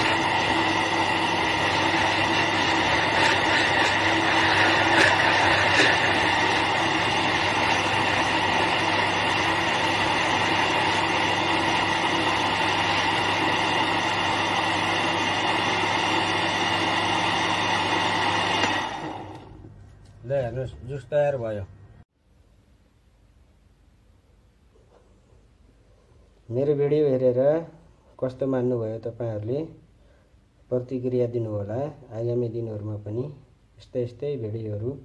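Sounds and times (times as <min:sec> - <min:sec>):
electric blender motor running: 0:00.0 - 0:19.6.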